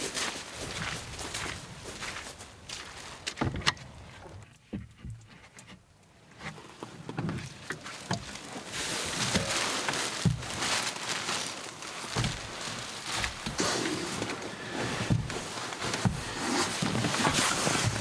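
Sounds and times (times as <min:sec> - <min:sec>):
footsteps on wooden steps: 0:00.0 - 0:05.8, 0:09.2 - 0:10.6, 0:12.1 - 0:18.0
plastic bags rustling: 0:07.5 - 0:18.0.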